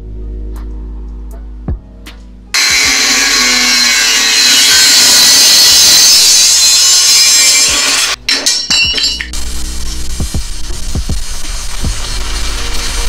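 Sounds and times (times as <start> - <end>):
background music: 0.0 - 2.6, 8.2 - 13.0
angle grinder cutting steel: 2.6 - 9.2.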